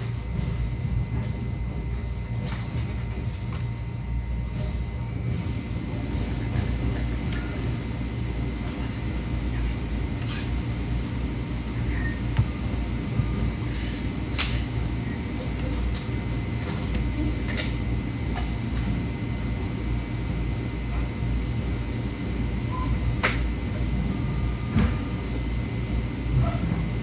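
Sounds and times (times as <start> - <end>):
train low rumble: 0.0 - 27.0.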